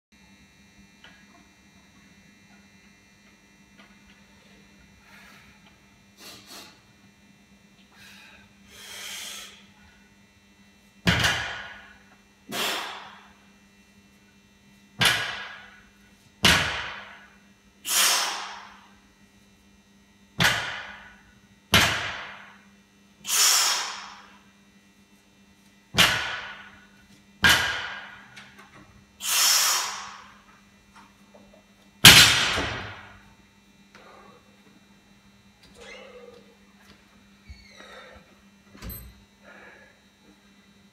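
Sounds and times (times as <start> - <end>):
steady low hum: 0.2 - 40.9
hissing breath out: 17.9 - 18.5, 23.3 - 24.0, 29.2 - 30.0.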